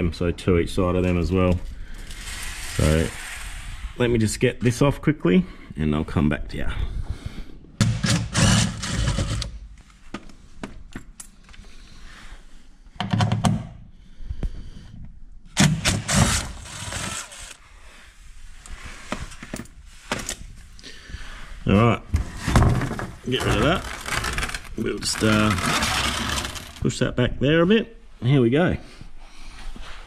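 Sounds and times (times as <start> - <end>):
impact driver rattling hammering: 7.8 - 9.5.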